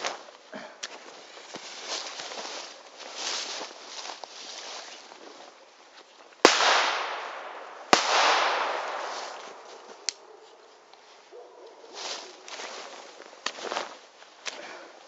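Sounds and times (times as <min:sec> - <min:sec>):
sharp firecracker crack: 0:06.4 - 0:10.3
loud firecracker bangs: 0:06.5 - 0:10.1
rolling echo: 0:06.5 - 0:11.5.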